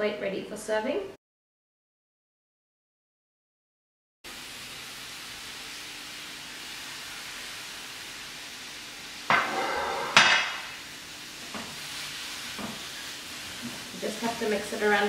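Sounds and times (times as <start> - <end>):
leaves hissing in a hot pan: 4.3 - 15.0
loud sizzling bursts: 4.3 - 15.0
wooden spatula stirring and knocking: 12.5 - 14.0.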